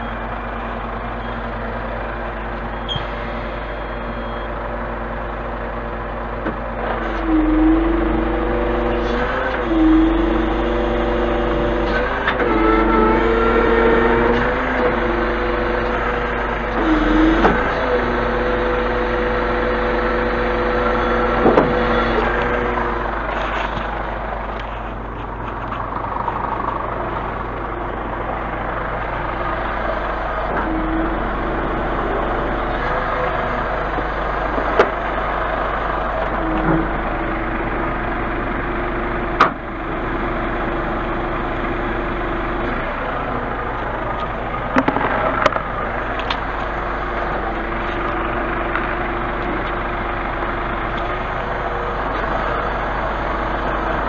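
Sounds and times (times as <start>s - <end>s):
diesel truck engine idling: 0.0s - 54.0s
sharp knocks and clicks: 44.2s - 46.4s.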